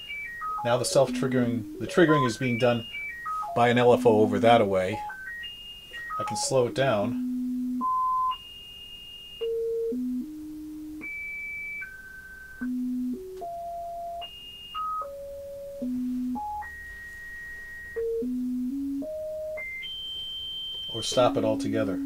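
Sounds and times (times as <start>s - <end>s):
synthesizer tone jumping in pitch: 0.0s - 5.3s.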